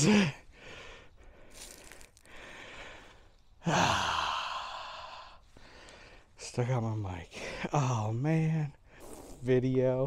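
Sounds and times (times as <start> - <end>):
man breathing hard: 0.0 - 6.4
man sighing loudly: 3.6 - 5.3.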